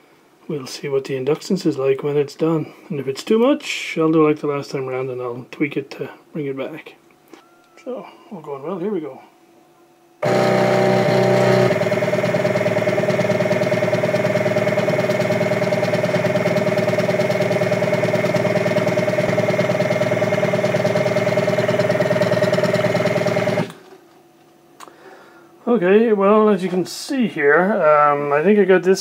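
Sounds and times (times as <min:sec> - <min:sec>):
coil winding machine whining: 0:10.2 - 0:24.0.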